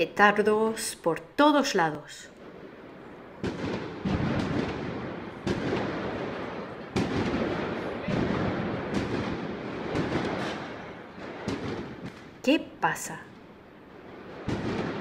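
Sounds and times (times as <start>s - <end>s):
firecrackers banging: 2.4s - 15.0s.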